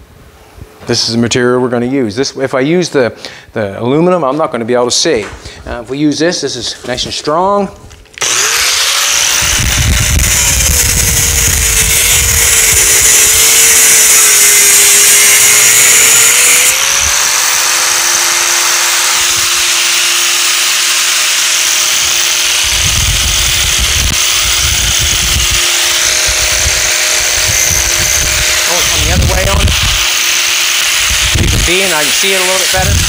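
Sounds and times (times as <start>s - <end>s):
angle grinder cutting metal mesh: 8.2s - 33.0s.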